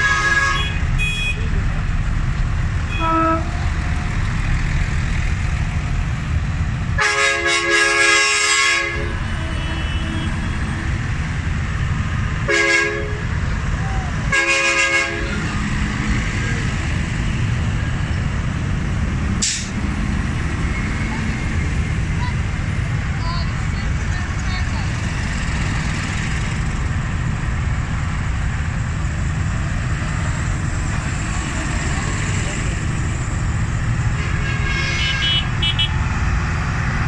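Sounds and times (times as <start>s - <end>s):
vehicle horn blasts: 0.0s - 1.5s, 2.9s - 3.5s, 7.0s - 10.6s, 12.5s - 13.2s, 14.3s - 15.4s, 34.2s - 36.0s
tractor diesel engines running: 0.0s - 37.0s.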